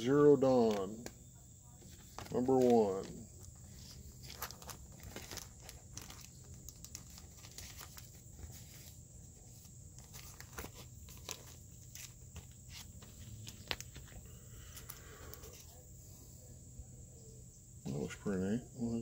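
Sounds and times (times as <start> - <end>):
plastic sleeve crinkling: 0.6 - 1.1, 1.8 - 15.7.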